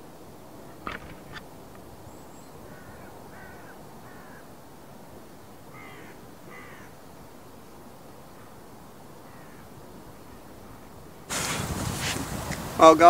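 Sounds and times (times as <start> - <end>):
outdoor background hiss: 0.0 - 13.0
crow cawing: 2.6 - 4.5, 5.7 - 7.0, 9.2 - 9.7.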